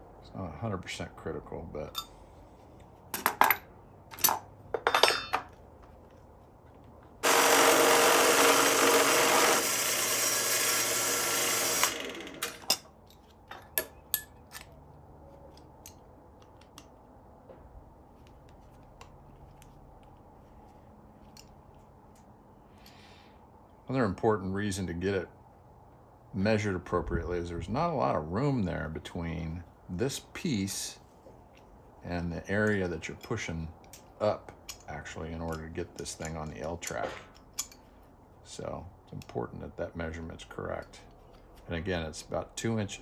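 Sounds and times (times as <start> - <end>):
drill press boring through metal: 7.2 - 12.6.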